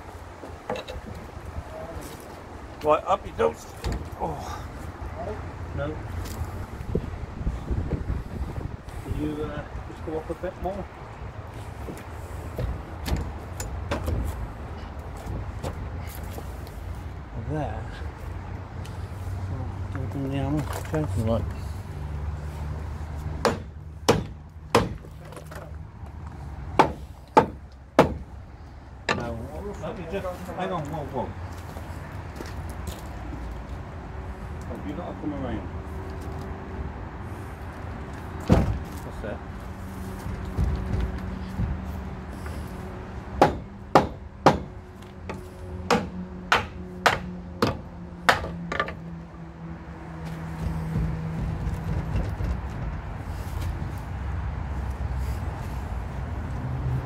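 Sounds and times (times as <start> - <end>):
hammer striking metal: 23.4 - 25.0
hammer striking wooden frame: 23.4 - 25.1, 26.8 - 28.3, 43.4 - 49.0.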